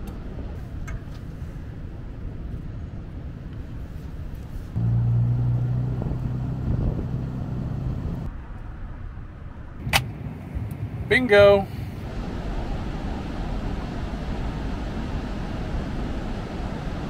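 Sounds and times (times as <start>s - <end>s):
vehicle engine hum: 0.0s - 17.0s
low rumble: 1.5s - 11.1s.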